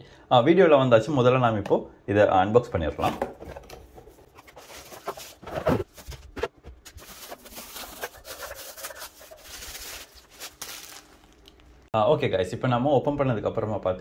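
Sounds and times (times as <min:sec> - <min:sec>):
plastic bags crinkling: 0:06.9 - 0:11.9.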